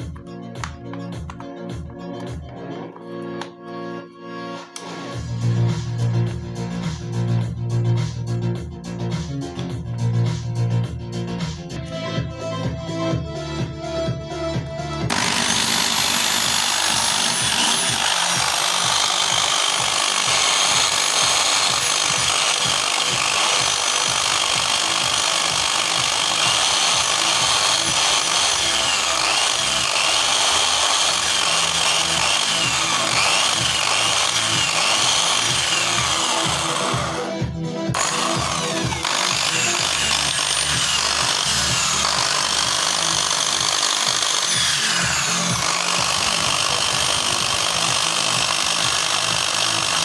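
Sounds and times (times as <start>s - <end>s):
electric drill motor whine: 15.1s - 50.0s.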